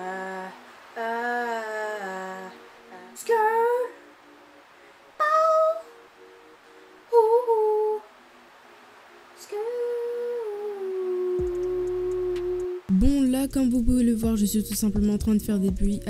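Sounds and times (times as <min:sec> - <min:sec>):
faint backing music: 0:00.0 - 0:16.0.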